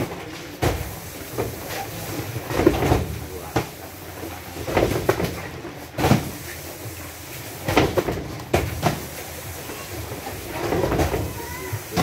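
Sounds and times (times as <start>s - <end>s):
cardboard cartons thumping: 4.6s - 6.6s, 7.6s - 9.2s, 10.4s - 12.0s.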